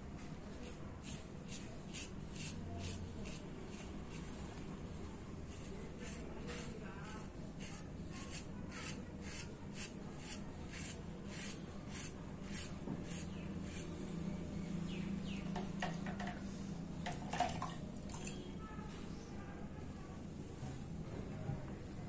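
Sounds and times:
razor scraping stubble: 0:01.0 - 0:04.4, 0:05.5 - 0:14.0.

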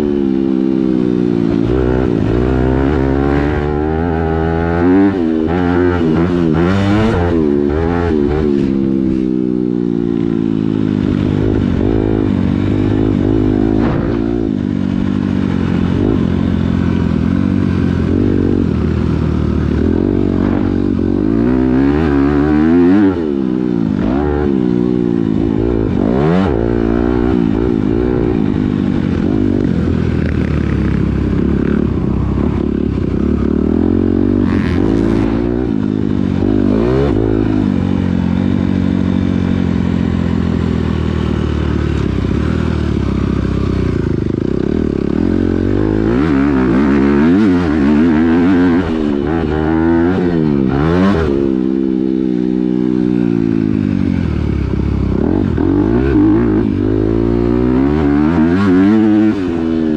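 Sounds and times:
motocross bike engine revving: 0:00.0 - 0:59.9.

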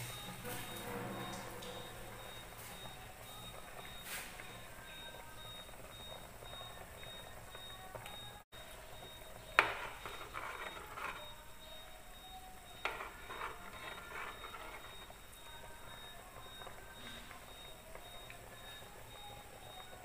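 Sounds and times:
scraping and clatter in pot: 0:00.0 - 0:04.5, 0:09.5 - 0:11.4, 0:12.8 - 0:15.2
faint high-pitched tone: 0:00.0 - 0:20.0.

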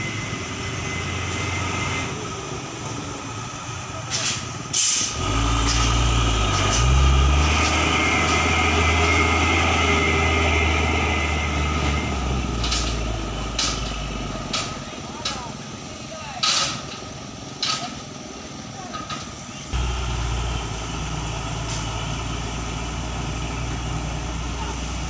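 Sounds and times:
diesel truck engine rumbling: 0:00.0 - 0:25.0
short sharp hiss: 0:04.2 - 0:05.2.

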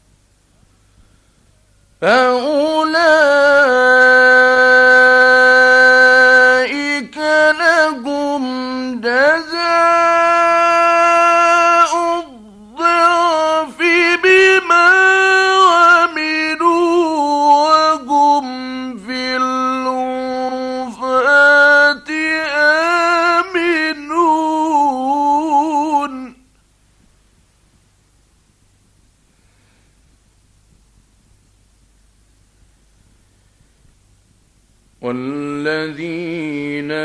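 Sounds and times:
man chanting recitation: 0:02.0 - 0:26.5, 0:35.0 - 0:37.0.

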